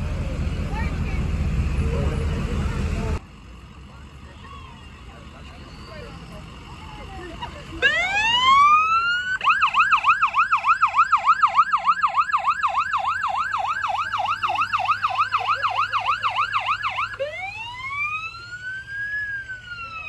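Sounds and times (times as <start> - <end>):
ambulance siren: 4.0 - 20.0.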